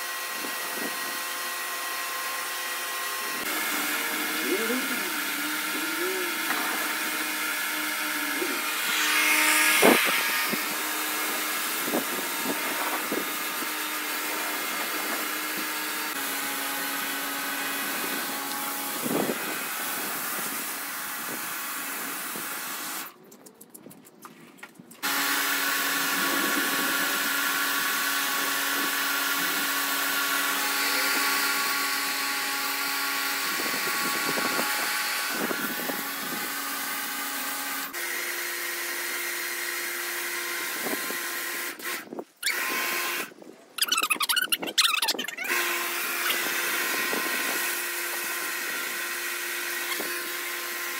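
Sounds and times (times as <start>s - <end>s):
pressure washer motor hum: 0.0s - 23.1s, 25.0s - 43.3s, 45.4s - 50.9s
water jet hissing on concrete: 2.8s - 16.0s.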